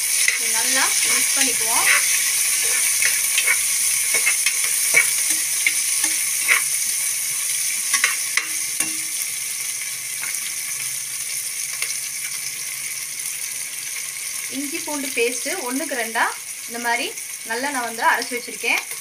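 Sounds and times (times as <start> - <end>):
utensil scraping pot: 0.0 - 7.0, 7.9 - 9.2
onions sizzling in oil: 0.0 - 19.0.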